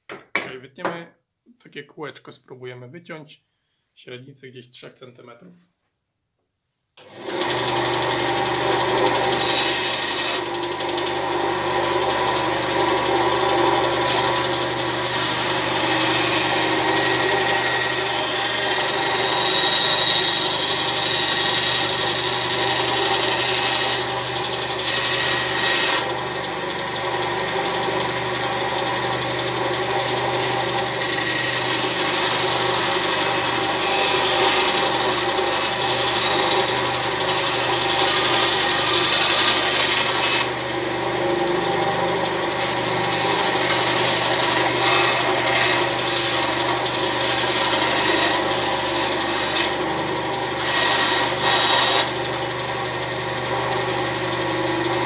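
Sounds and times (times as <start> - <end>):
band saw motor hum: 7.0 - 55.0
saw blade cutting wood: 7.0 - 55.0.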